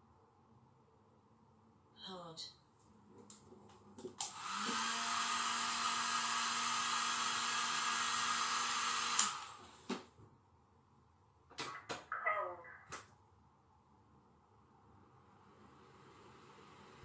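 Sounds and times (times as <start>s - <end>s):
hair dryer blowing: 4.2s - 9.8s.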